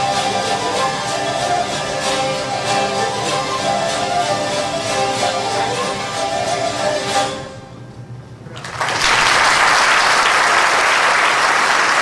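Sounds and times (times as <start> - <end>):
zither ensemble notes ringing: 0.0 - 8.2
audience applause: 8.5 - 12.0.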